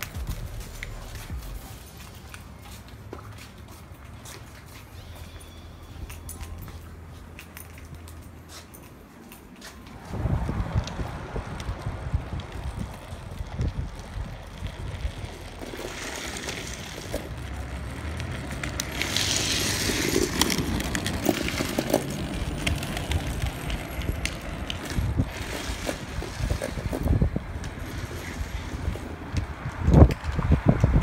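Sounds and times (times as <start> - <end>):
trike wheels rumbling on asphalt: 0.0 - 8.6, 9.6 - 31.0
wheels sliding scraping hiss: 9.6 - 30.0
wind on microphone: 9.9 - 15.6, 19.2 - 31.0.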